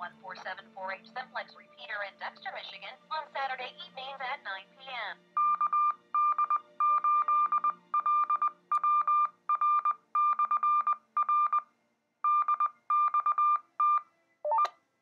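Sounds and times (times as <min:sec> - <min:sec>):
morse code beeps: 0:05.4 - 0:11.7, 0:12.3 - 0:14.7.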